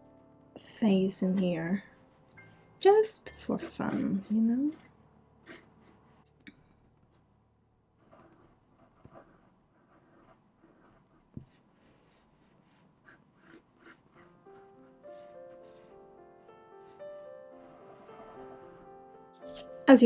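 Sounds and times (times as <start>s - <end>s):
pencil scratching on board: 3.4s - 6.3s, 8.0s - 16.0s, 16.8s - 19.7s.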